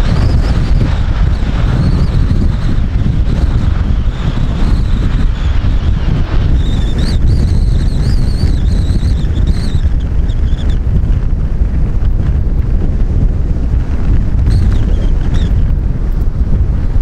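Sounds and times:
jet engines whining: 0:00.0 - 0:11.6
wind buffeting microphone: 0:00.0 - 0:17.0.

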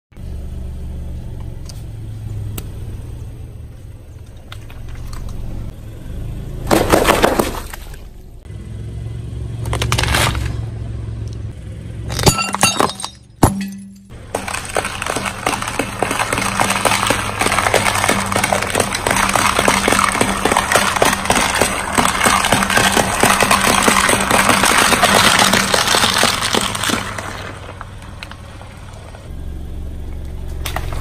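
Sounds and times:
low engine hum: 0:00.1 - 0:31.0
tyre crushing objects: 0:06.7 - 0:07.8, 0:12.1 - 0:28.4
popping and splatter: 0:13.4 - 0:29.2
eggs crackling under tyre: 0:14.1 - 0:29.3.

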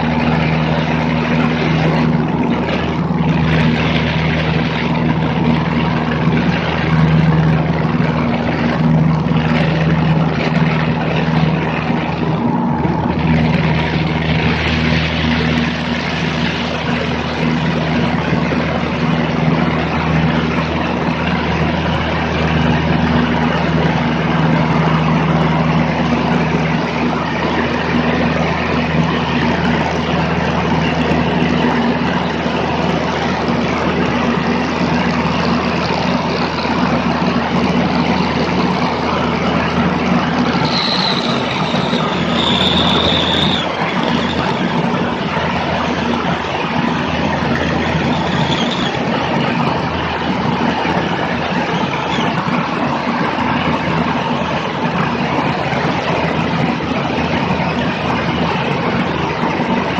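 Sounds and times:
heavy wind rush: 0:00.0 - 0:59.9
propeller plane engine droning: 0:00.0 - 0:59.9
brief high whistle: 0:40.6 - 0:44.6, 0:48.2 - 0:49.0.

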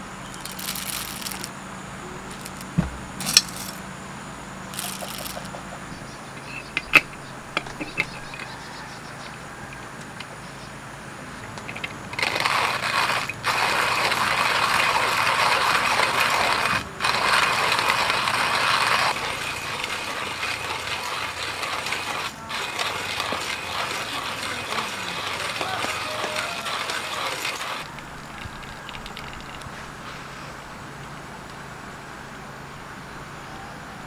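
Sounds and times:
hand coffee grinder grinding: 0:00.3 - 0:01.5, 0:02.3 - 0:03.8, 0:04.7 - 0:05.6, 0:06.4 - 0:08.8, 0:11.5 - 0:29.7.

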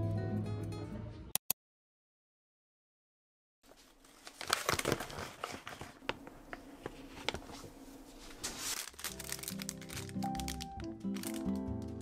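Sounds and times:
plastic pouches crinkling: 0:03.7 - 0:12.0.

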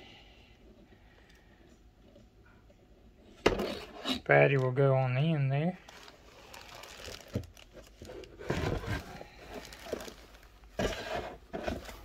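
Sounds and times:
plastic packaging crinkling: 0:05.8 - 0:12.0.

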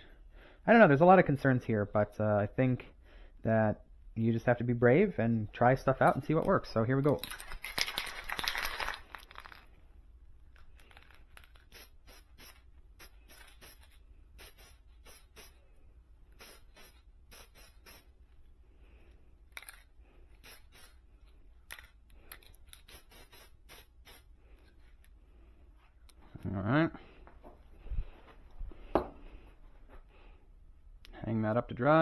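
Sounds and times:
aerosol can spraying: 0:11.6 - 0:15.6, 0:16.3 - 0:18.2, 0:20.4 - 0:21.0, 0:22.7 - 0:24.3.

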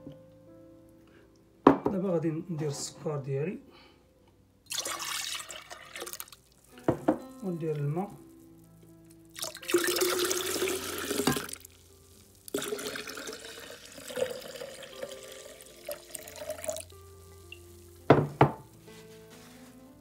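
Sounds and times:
water pouring into a pitcher: 0:04.7 - 0:06.6, 0:09.3 - 0:11.8, 0:12.5 - 0:17.0.

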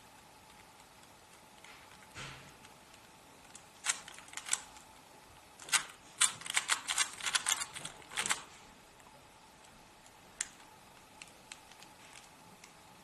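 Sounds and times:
puzzle cube layers clicking: 0:00.4 - 0:04.8, 0:05.6 - 0:08.5.

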